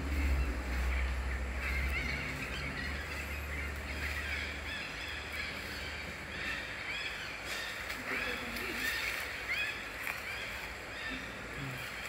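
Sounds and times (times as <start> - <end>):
low rumble: 0.0 - 6.5.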